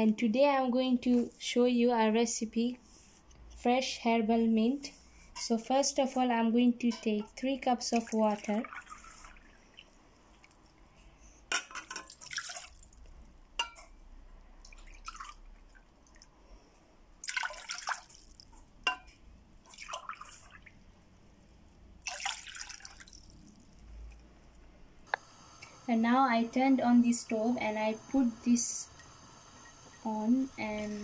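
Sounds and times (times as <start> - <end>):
water pouring into metal pot: 8.0 - 10.6, 11.6 - 13.1, 14.6 - 16.2, 17.2 - 18.5, 19.6 - 20.7, 22.0 - 23.8.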